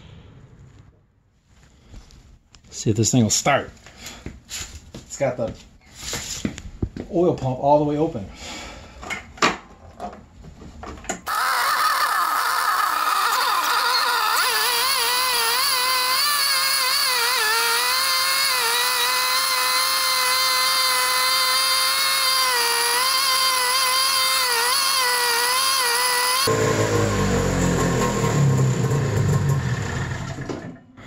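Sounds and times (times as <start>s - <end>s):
snowmobile engine running: 18.5s - 30.4s.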